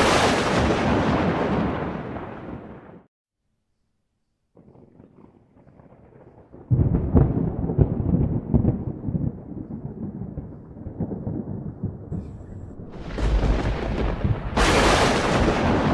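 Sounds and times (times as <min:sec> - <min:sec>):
thunder rolling and crackling: 0:00.0 - 0:03.1, 0:04.6 - 0:15.9
hissing storm noise: 0:12.2 - 0:15.9.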